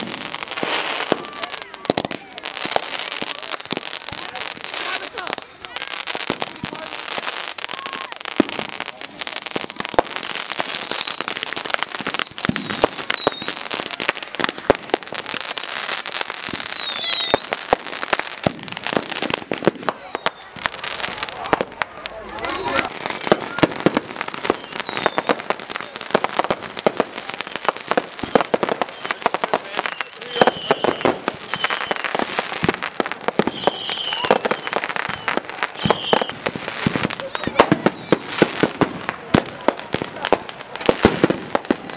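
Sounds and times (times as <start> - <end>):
firecracker bangs: 0.0 - 41.9
fireworks hissing and crackling: 0.0 - 41.9
falling firework whistles: 7.7 - 20.6, 22.2 - 25.6, 26.4 - 38.8, 40.9 - 41.9.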